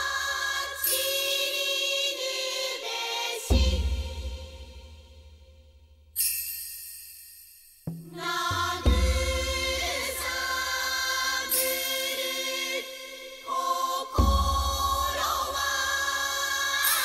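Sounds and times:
choir singing wavering chords: 0:00.0 - 0:05.2, 0:08.2 - 0:17.0
deep drum strokes: 0:07.9 - 0:10.6.

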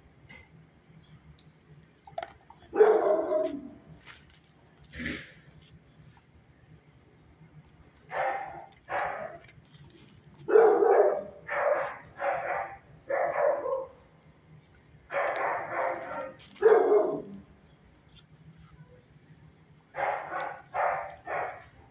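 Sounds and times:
dog barking: 0:02.7 - 0:03.7, 0:08.1 - 0:09.4, 0:10.5 - 0:14.0, 0:15.1 - 0:17.4, 0:20.0 - 0:21.8.

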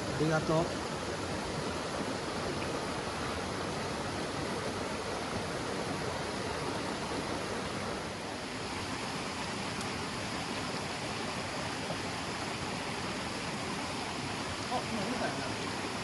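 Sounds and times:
stream rushing over rocks: 0:00.0 - 0:16.0.

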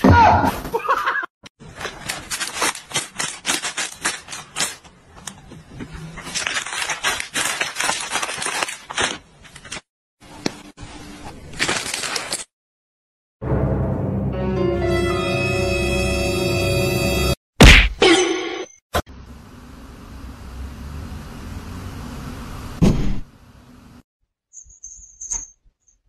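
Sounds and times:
plastic packaging crinkling: 0:01.6 - 0:05.5, 0:06.1 - 0:09.9, 0:11.3 - 0:12.5.

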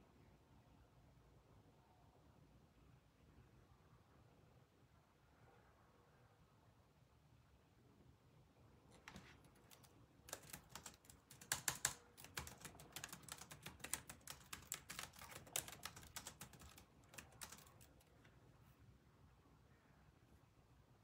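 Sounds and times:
keyboard typing clicks: 0:09.0 - 0:18.1.

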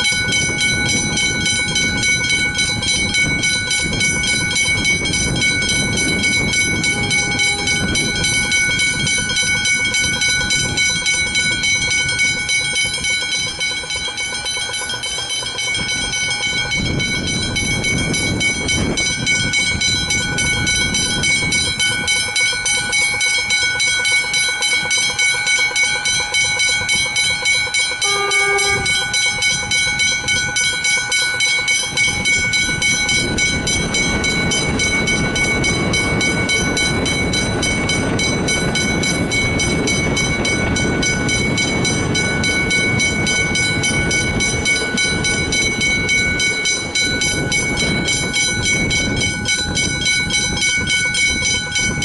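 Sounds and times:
level crossing bells ringing: 0:00.0 - 0:52.0
train wheels rushing on rails: 0:00.0 - 0:52.0
train horn blast: 0:06.5 - 0:08.5, 0:28.0 - 0:29.3.

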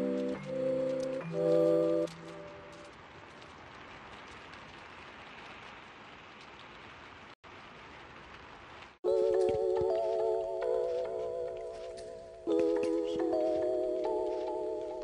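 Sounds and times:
music with wavering chords: 0:09.1 - 0:15.0.

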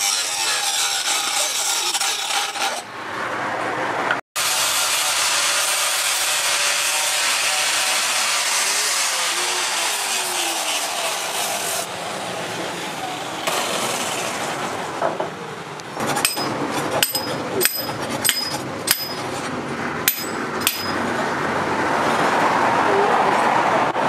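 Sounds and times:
sharp metallic knocks: 0:16.0 - 0:19.4, 0:20.0 - 0:21.2.

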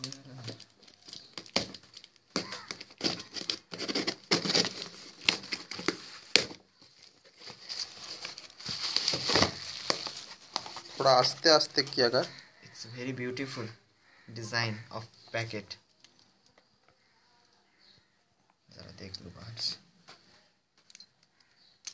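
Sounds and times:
bubble wrap crinkling: 0:00.0 - 0:12.4
cardboard box scraping and tearing: 0:02.7 - 0:06.3.

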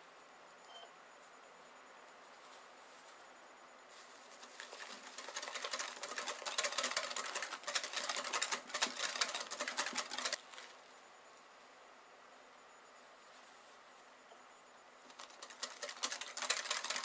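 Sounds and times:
whisk clicking in glass bowl: 0:04.8 - 0:10.4, 0:15.1 - 0:17.0.

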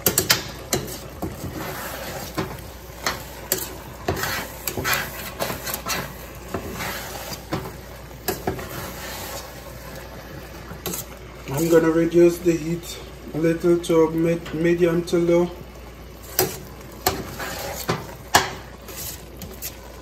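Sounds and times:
spoon scraping metal pot: 0:00.0 - 0:09.6, 0:10.8 - 0:11.9, 0:16.2 - 0:20.0.

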